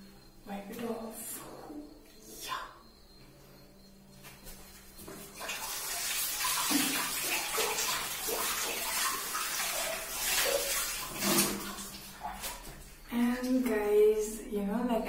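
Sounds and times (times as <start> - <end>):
tap water running and splashing: 5.0 - 13.6.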